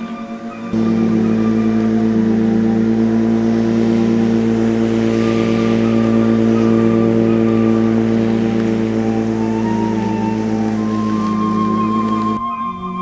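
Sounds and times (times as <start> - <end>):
electric lawn mower humming: 0.0 - 12.4.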